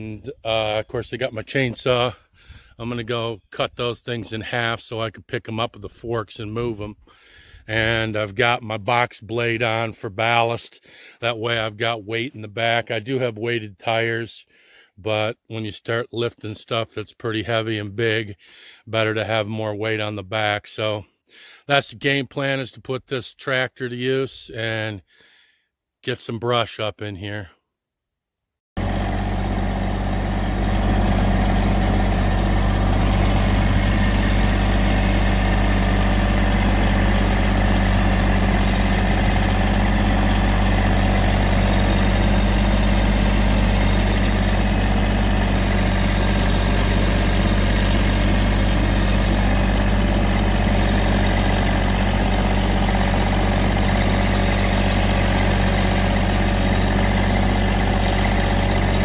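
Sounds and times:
tractor diesel engine running: 0:00.0 - 0:10.4, 0:28.8 - 0:59.0.

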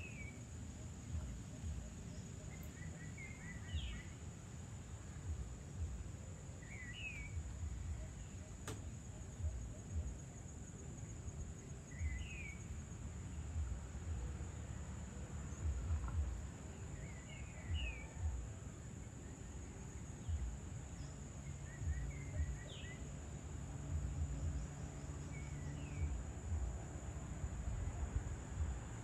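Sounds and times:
faint low hum: 0:00.0 - 0:29.0
high insect drone: 0:00.0 - 0:29.0
bird chirps: 0:01.2 - 0:04.3, 0:06.6 - 0:08.9, 0:11.8 - 0:13.4, 0:15.5 - 0:18.4, 0:19.2 - 0:23.1
low gusty rumble: 0:18.1 - 0:29.0.

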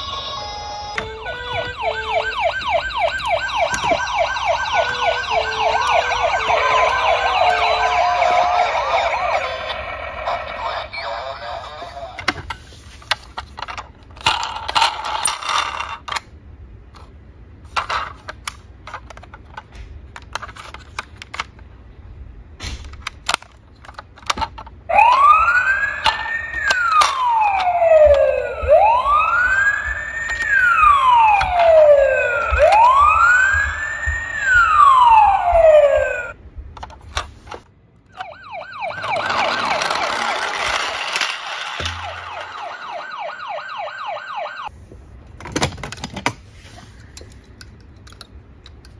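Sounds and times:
pulsing siren: 0:00.0 - 0:10.9, 0:24.9 - 0:36.4, 0:38.1 - 0:44.7
toy ambulance siren wailing: 0:00.0 - 0:12.1, 0:24.9 - 0:36.4, 0:38.1 - 0:44.7
plastic toy clicks and knocks: 0:12.2 - 0:16.3, 0:17.8 - 0:21.6, 0:22.6 - 0:25.2, 0:26.0 - 0:28.2, 0:39.0 - 0:43.0, 0:47.2 - 0:48.9.

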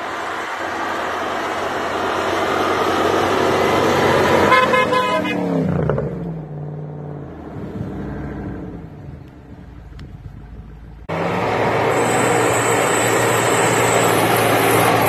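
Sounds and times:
car engine and tyre noise: 0:00.0 - 0:15.0
car horn toot: 0:04.4 - 0:05.5.

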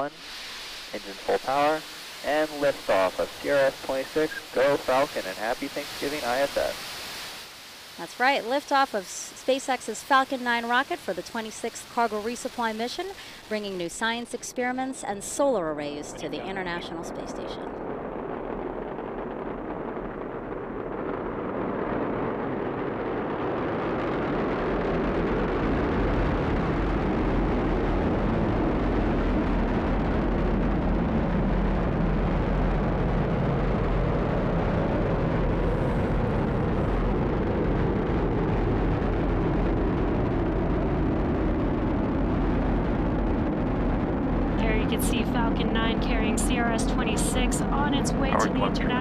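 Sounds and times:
rocket engines rumbling: 0:00.0 - 0:07.2, 0:08.0 - 0:49.0.

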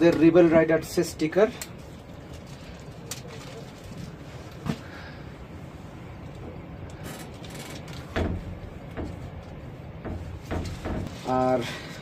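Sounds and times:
knocks on a metal door: 0:08.1 - 0:09.3, 0:10.0 - 0:11.2.

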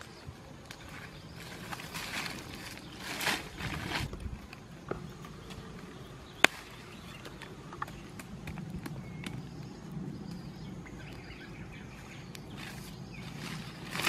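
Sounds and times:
campfire crackling: 0:00.0 - 0:14.0
sharp pops and snaps: 0:06.4 - 0:11.3.

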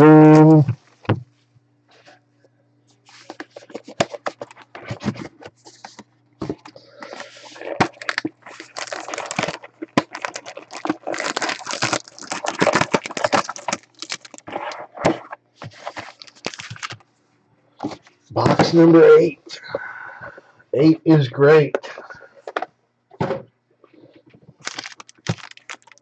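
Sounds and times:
foil pack crinkling: 0:03.1 - 0:17.0, 0:24.6 - 0:26.0
cardboard box being opened: 0:07.0 - 0:17.0, 0:24.6 - 0:26.0.

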